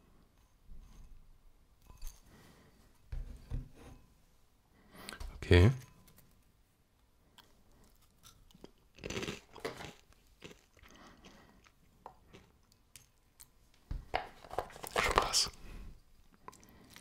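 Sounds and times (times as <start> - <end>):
person chewing crunchy cereal: 7.3 - 13.5.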